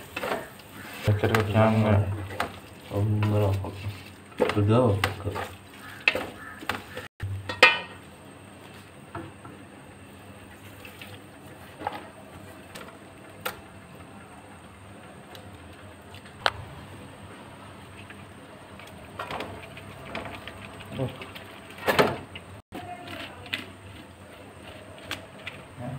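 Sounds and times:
wooden spatula stirring in a pot: 0.0 - 7.1.

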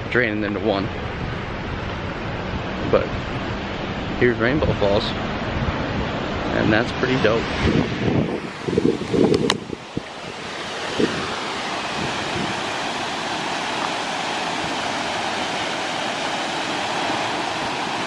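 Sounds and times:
waterfall rushing: 4.9 - 18.0.

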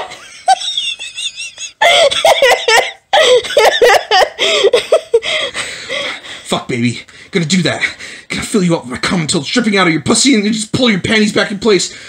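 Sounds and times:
people laughing: 0.0 - 5.4.

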